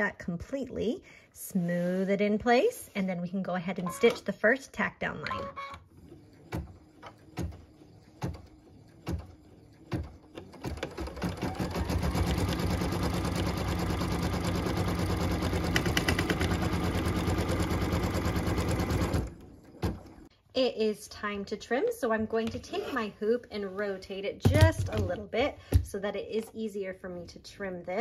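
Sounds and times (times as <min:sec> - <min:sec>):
embroidery machine stitching: 0:05.5 - 0:19.5.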